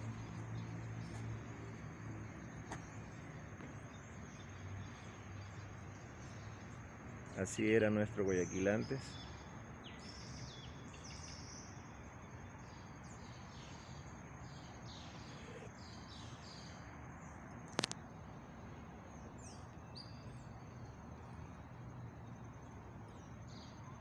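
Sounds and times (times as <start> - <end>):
birds chirping: 0.0 - 11.8, 12.4 - 17.9
outdoor background hiss: 0.0 - 24.0
sharp click: 17.7 - 18.0.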